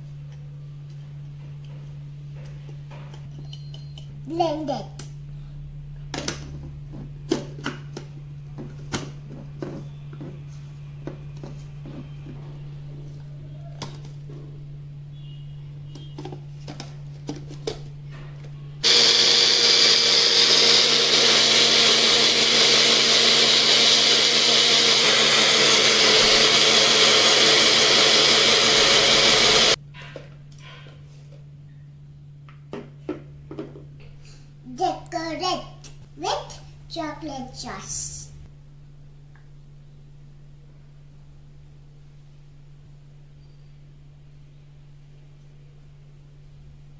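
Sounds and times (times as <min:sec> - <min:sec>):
countertop blender running: 0:18.8 - 0:29.8.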